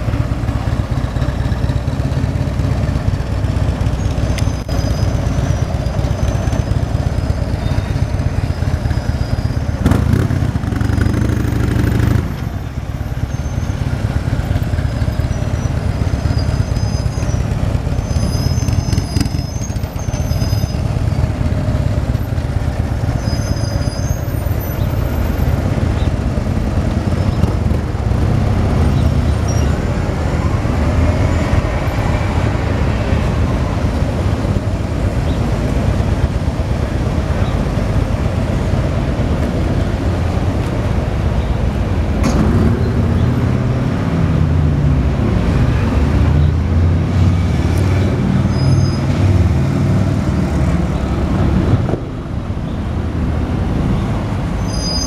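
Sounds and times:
traffic engine and road rumble: 0.0 - 55.0
brief high squeals: 48.5 - 49.1, 54.6 - 55.0.

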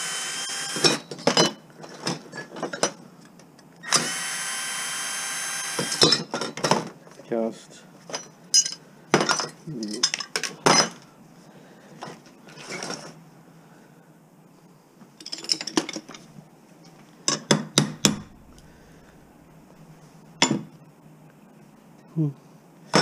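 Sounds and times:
metal parts rattling: 15.2 - 16.2.

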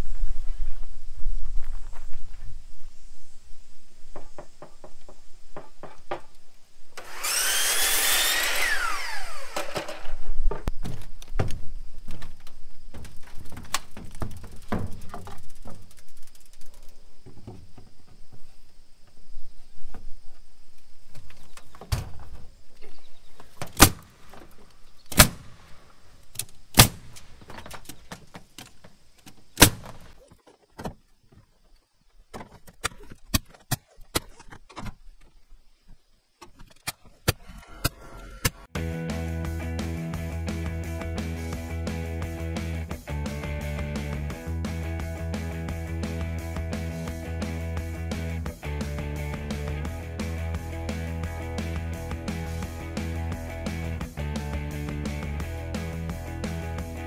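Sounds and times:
wooden knocks: 4.1 - 6.4
power saw cutting wood: 7.0 - 10.2.

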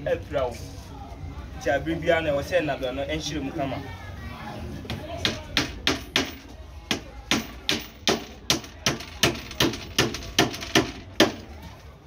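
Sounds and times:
hammer nailing wooden boards: 5.2 - 11.5.

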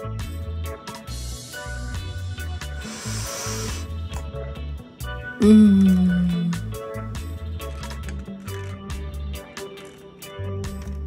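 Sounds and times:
brief high hiss: 2.8 - 3.9.

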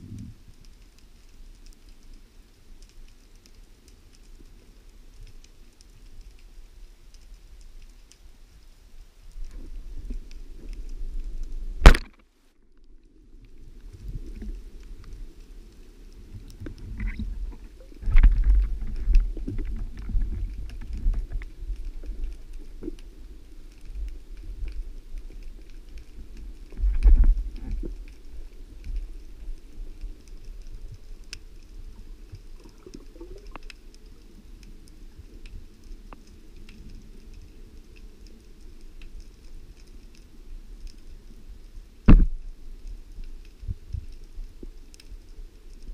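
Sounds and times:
low rumbling water noise: 0.0 - 45.9
small knocks and ticks: 9.3 - 41.2, 42.1 - 45.9
sharp loud crack: 11.8 - 12.2.

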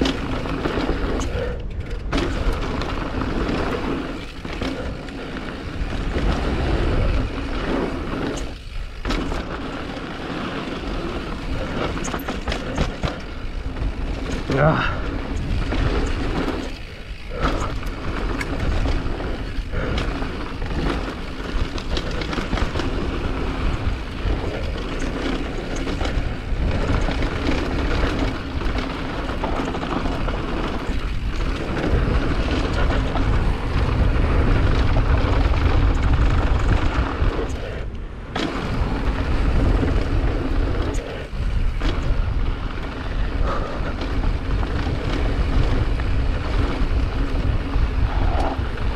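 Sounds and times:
low motor drone: 0.0 - 48.9
wind rushing on microphone: 0.0 - 48.9.

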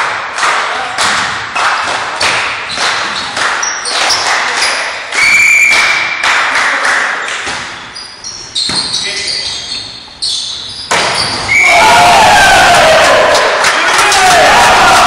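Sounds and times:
sharp thuds echoing in sports hall: 0.0 - 15.0
referee's whistle: 4.6 - 6.2, 7.8 - 11.8.

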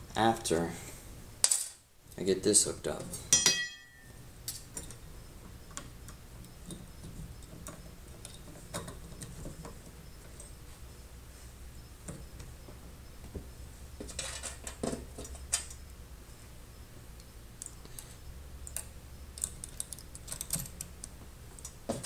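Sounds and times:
faint low hum: 0.0 - 22.0
small clicks and taps of parts: 17.2 - 22.0.

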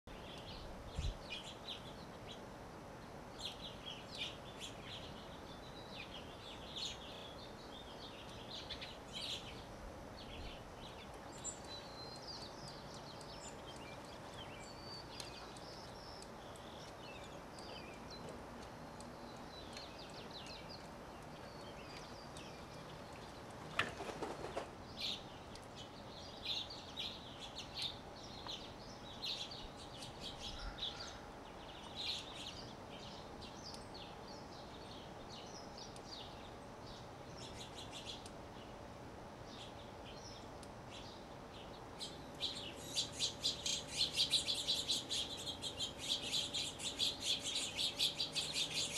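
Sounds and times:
small birds chirping: 0.0 - 48.9
faint steady hum: 0.1 - 48.9
loud rustle: 23.8 - 24.8.

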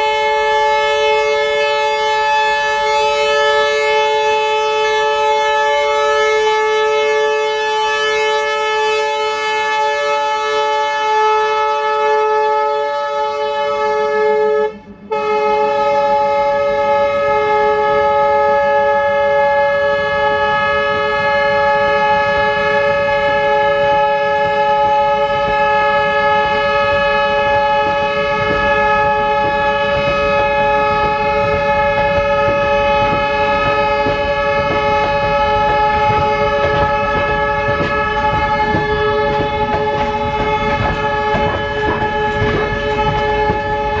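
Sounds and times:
train horn chord: 0.0 - 44.0
train wheels clattering over rail joints: 19.6 - 44.0.

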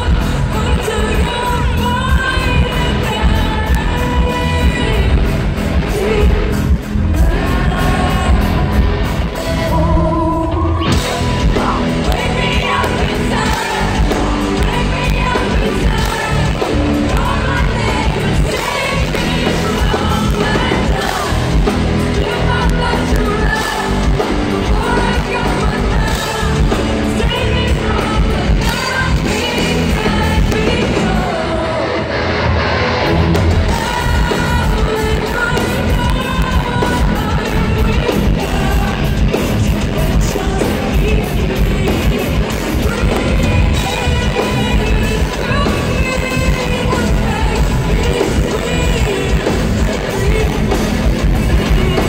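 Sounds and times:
woman singing: 0.0 - 32.2, 33.5 - 52.0
rock band playing live: 0.0 - 52.0.

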